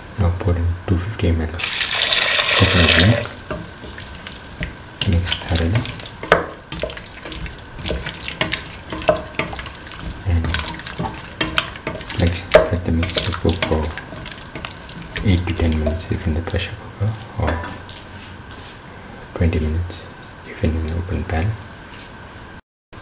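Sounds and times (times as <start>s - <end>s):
liquid pouring into hot pan hissing: 1.6s - 15.3s
spatula scraping metal pan: 5.3s - 15.3s.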